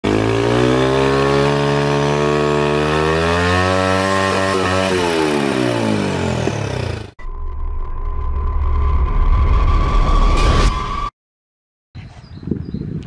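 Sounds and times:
motorbike engine at high revs: 0.0 - 7.2.

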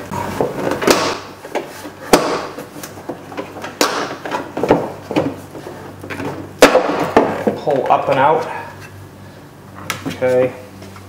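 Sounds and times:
sharp knocks: 2.1 - 2.6.

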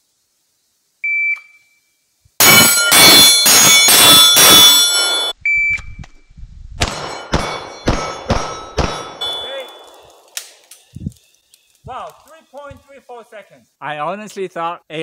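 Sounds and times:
steel plates ringing: 2.4 - 5.4, 7.0 - 9.9
pistol shots: 6.8 - 10.3
shot timer beep: 9.2 - 9.8.

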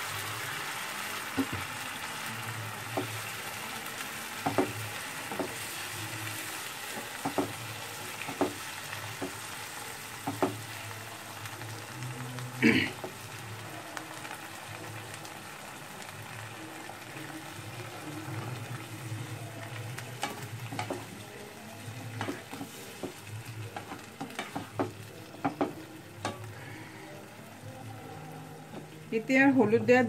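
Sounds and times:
food sizzling in a pan: 0.0 - 30.0.

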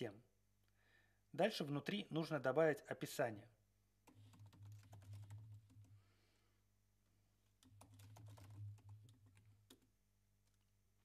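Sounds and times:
faint keyboard typing: 4.0 - 6.0, 7.4 - 10.8.

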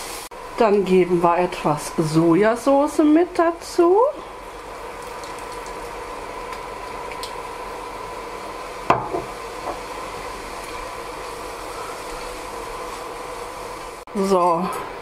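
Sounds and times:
electrical hum from hob: 0.0 - 15.0
noodles frying in oil: 0.0 - 15.0.

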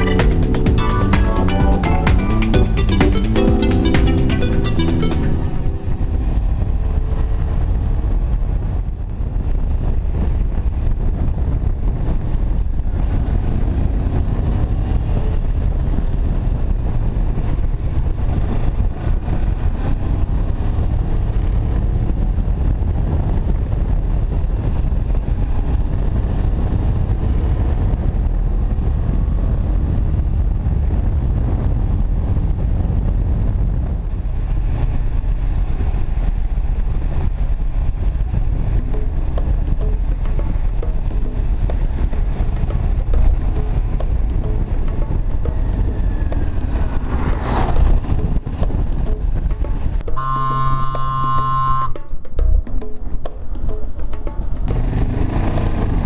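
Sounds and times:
wind rumble on microphone: 5.4 - 56.0
motorcycle engine running: 35.2 - 51.9, 54.4 - 56.0.

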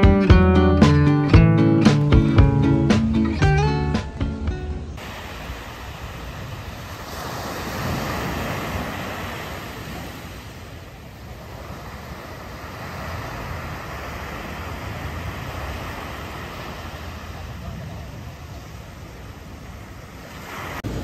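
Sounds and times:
wind on microphone: 4.6 - 21.0
small waves breaking on beach: 5.0 - 21.0.

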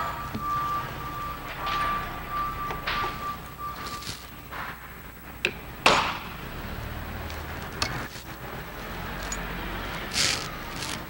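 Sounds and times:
low shop hum: 0.0 - 11.0
metal parts clicking and knocking: 9.1 - 9.6.

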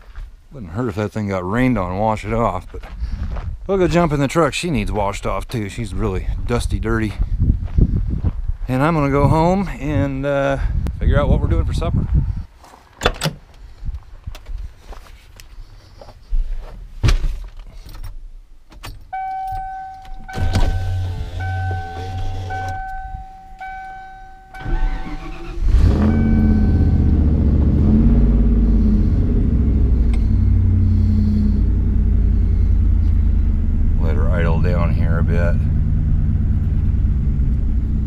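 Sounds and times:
clunks getting into cab: 18.7 - 25.1
truck door shutting: 18.8 - 27.7
warning chime pulses: 19.2 - 28.8
engine cranking and idling: 19.6 - 38.0.

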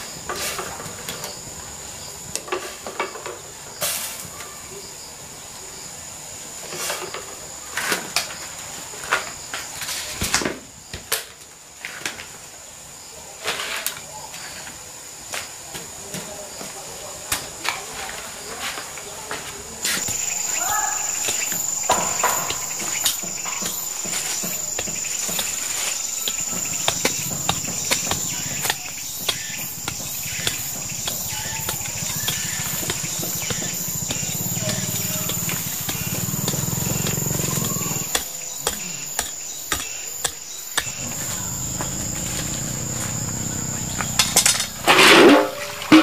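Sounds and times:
insects trilling: 19.8 - 46.0.

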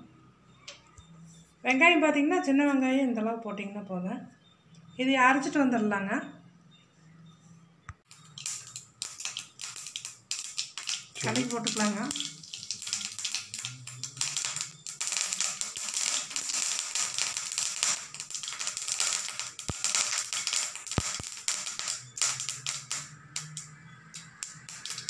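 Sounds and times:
seeds popping in hot oil: 8.0 - 25.0
oil sizzling: 8.1 - 25.0.

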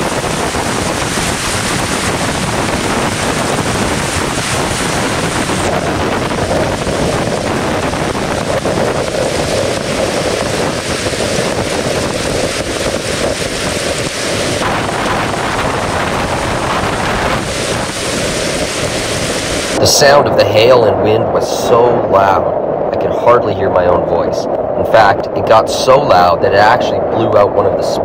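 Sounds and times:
hail pounding down: 0.0 - 19.8
violent wind: 0.0 - 28.0
wind buffeting microphone: 0.0 - 28.0.

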